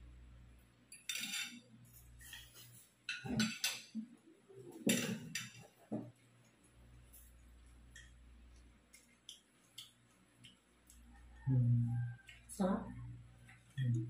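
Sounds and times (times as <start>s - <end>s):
cutlery scraping and clinking on plates: 1.0s - 4.1s, 4.7s - 6.1s.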